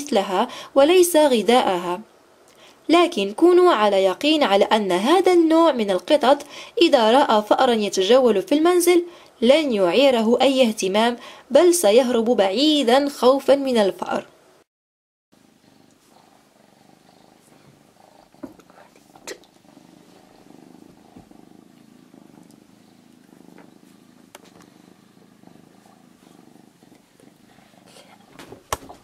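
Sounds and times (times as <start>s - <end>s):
kitten purring: 15.4s - 29.0s.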